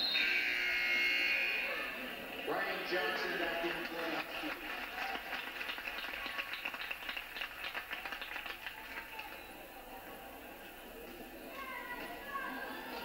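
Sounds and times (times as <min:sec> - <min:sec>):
crowd clapping: 0:02.3 - 0:09.7.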